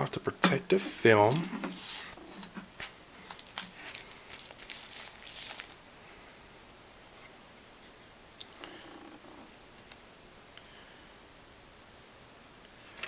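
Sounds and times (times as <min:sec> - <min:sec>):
plastic film crinkling: 0:01.2 - 0:05.8.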